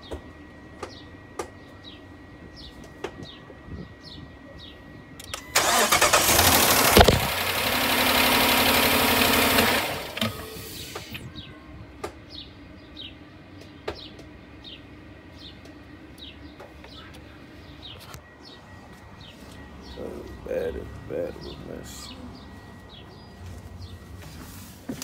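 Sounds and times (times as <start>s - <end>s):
starter motor cranking: 5.2s - 11.2s
car engine running loudly: 5.6s - 11.2s.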